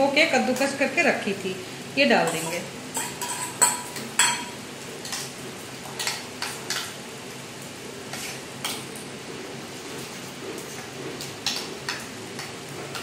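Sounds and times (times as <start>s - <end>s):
spoon stirring and scraping bowl: 2.2s - 7.0s, 8.1s - 9.0s, 9.8s - 13.0s.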